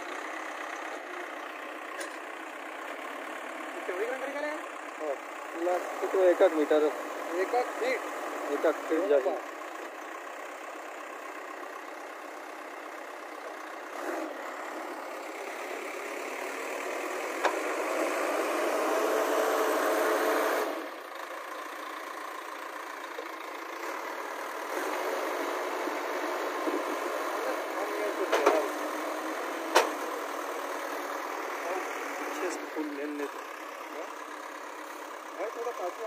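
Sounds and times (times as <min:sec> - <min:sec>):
diesel engine revving: 0:00.0 - 0:36.0.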